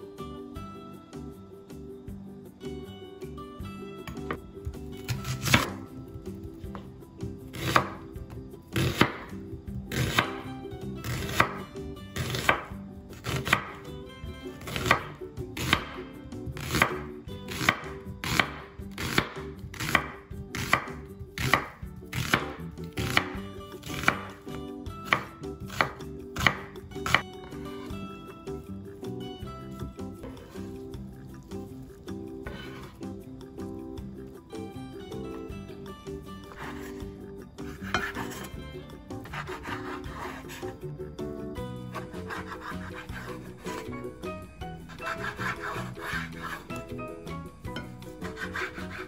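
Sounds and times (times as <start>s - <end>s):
knife slicing onion on board: 5.0s - 5.8s, 7.5s - 8.1s, 8.7s - 13.9s, 14.6s - 27.9s, 32.4s - 33.1s, 36.4s - 38.6s, 39.2s - 40.8s, 41.8s - 47.0s, 47.8s - 49.0s.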